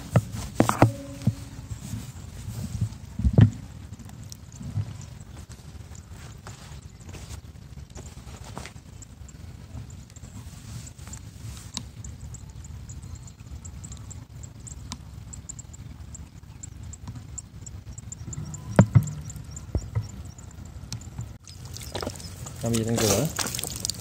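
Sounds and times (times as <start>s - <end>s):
wind on microphone: 0.0s - 6.2s
faint high ticks: 8.7s - 22.6s.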